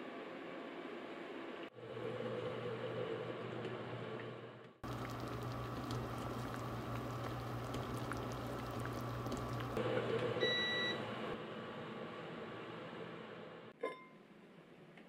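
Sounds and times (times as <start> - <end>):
broth bubbling in a pot: 4.8 - 9.8
low steady hum: 4.8 - 9.8
cooktop button beep: 10.4 - 11.0.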